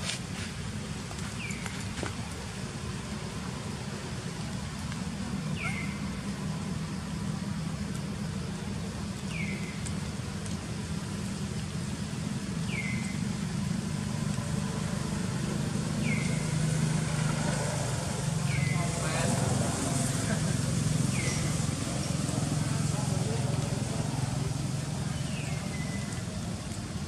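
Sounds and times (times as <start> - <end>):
vehicle engine rumble: 0.0 - 27.0
high falling bird chirp: 5.5 - 6.2.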